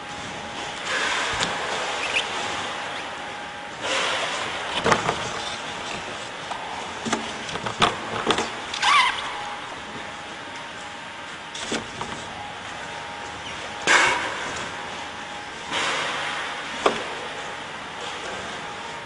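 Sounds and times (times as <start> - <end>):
dolphin squeak wavering in pitch: 8.8 - 9.4.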